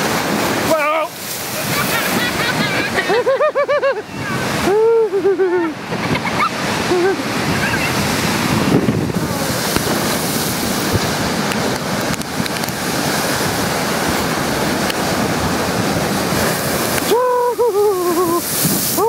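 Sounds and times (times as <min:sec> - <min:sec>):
waves crashing against seawall: 0:00.0 - 0:19.0
wind buffeting microphone: 0:03.8 - 0:19.0.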